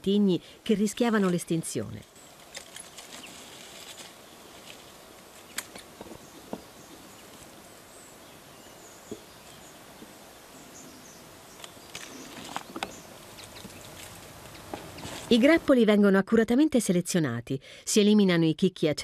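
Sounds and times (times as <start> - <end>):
pruning shears snipping: 5.4 - 6.0.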